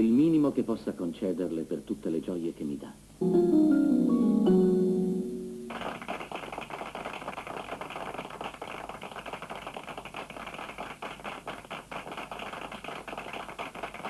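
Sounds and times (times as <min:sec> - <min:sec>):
people clapping: 0:05.7 - 0:14.0.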